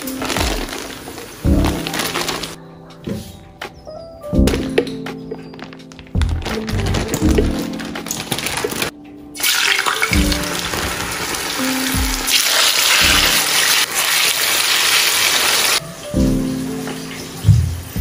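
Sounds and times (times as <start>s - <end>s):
background music with low notes: 0.0s - 13.9s, 15.8s - 18.0s
plantain sizzling in hot oil: 9.4s - 15.8s.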